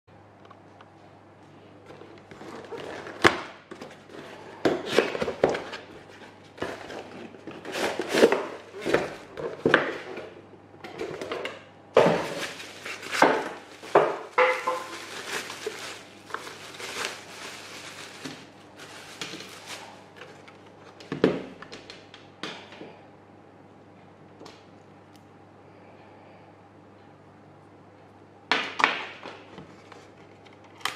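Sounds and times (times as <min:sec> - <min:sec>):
packaging rustling and crinkling: 0:01.9 - 0:10.3, 0:12.0 - 0:21.1.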